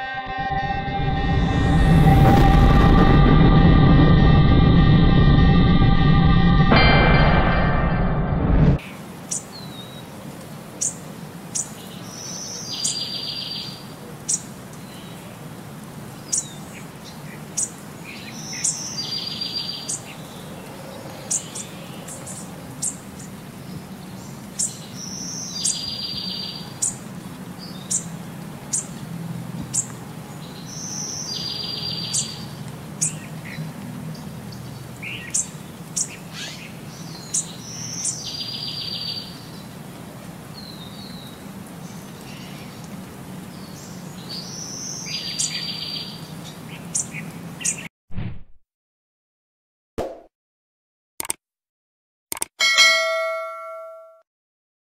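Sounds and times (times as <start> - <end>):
steady low hum: 0.3 - 8.8.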